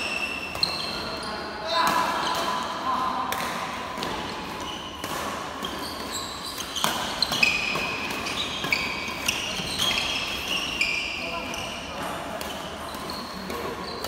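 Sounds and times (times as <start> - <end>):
shoes squeaking on court floor: 0.0 - 2.8, 3.4 - 14.0
racket hitting shuttlecock: 1.7 - 10.8.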